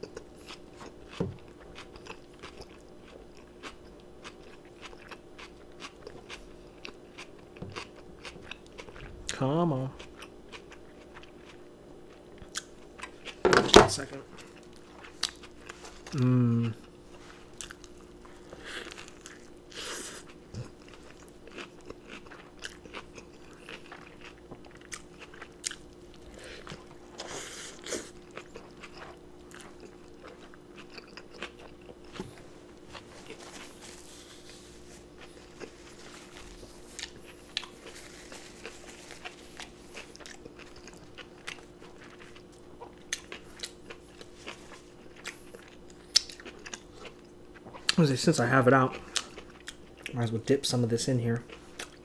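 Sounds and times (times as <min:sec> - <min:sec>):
biting and chewing burger: 0:00.0 - 0:09.4, 0:10.0 - 0:48.0
faint steady hum: 0:00.0 - 0:52.0
crisp crunches: 0:31.1 - 0:45.5.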